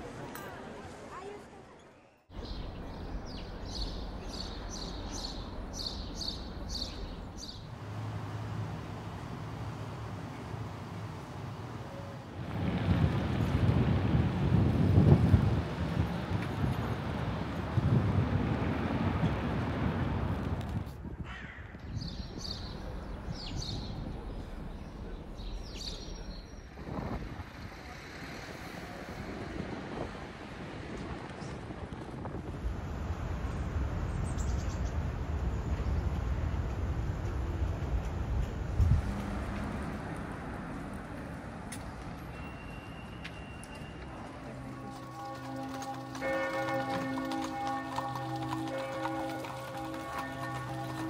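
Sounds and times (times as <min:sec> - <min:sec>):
low rumble of wind and traffic: 0:02.3 - 0:51.0
steady low rumble: 0:22.1 - 0:27.6.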